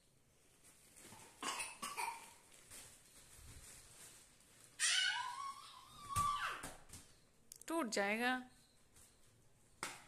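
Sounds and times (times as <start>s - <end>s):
toddler whining: 4.8s - 6.8s.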